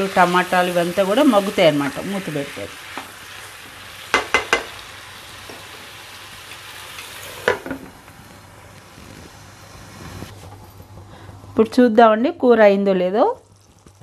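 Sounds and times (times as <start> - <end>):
curry sizzling in a frying pan: 0.0 - 11.0, 13.3 - 14.0
spatula knocking against pan: 4.1 - 4.7.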